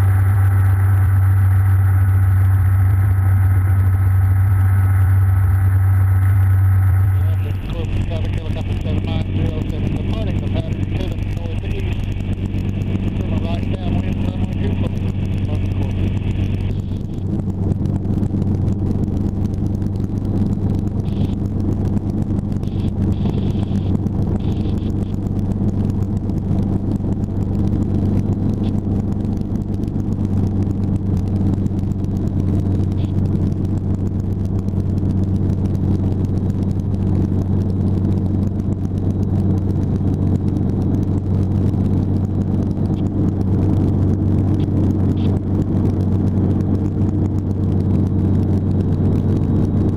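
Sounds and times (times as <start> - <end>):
helicopter engine and rotors: 0.0 - 49.9.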